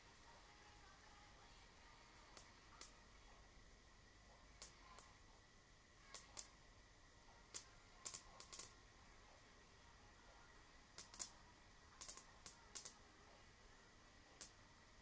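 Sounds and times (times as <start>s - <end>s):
faint steady high tone: 0.0s - 15.0s
high-voltage sparks snapping: 6.1s - 6.6s, 7.5s - 8.8s, 11.0s - 11.4s, 12.0s - 13.0s, 14.4s - 14.6s.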